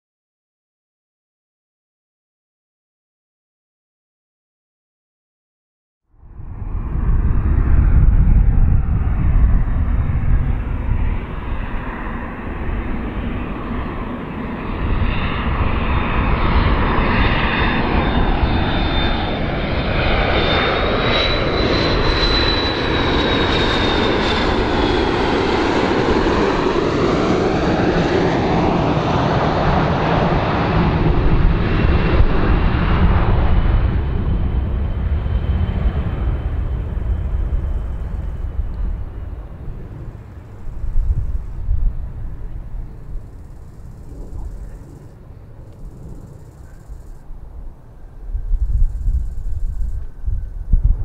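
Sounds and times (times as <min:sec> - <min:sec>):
jet airliner passing: 0:06.1 - 0:51.0.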